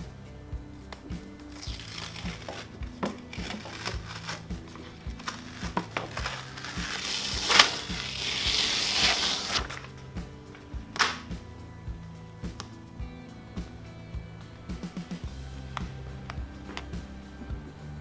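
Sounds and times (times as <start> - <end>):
background music with steady beat: 0.0 - 18.0
backing paper crinkling: 1.6 - 10.0.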